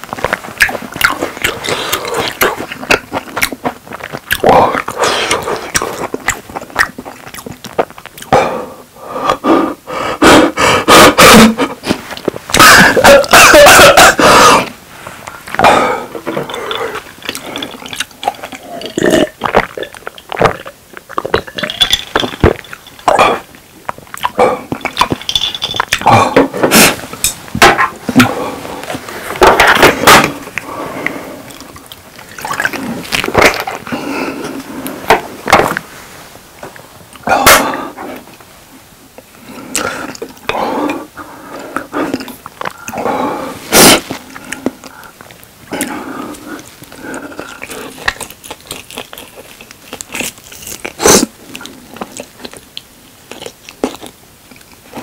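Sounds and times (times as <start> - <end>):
chewing with mouth smacks: 0.1 - 8.4, 15.3 - 26.1, 28.9 - 35.8, 44.3 - 55.0
gulping a drink: 0.5 - 9.4, 15.5 - 27.0, 27.6 - 35.7.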